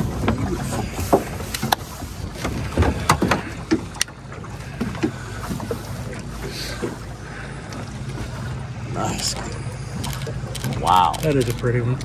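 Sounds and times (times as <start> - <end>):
knocks and taps in boat: 0.0 - 8.5
water sloshing against hull: 0.0 - 12.0.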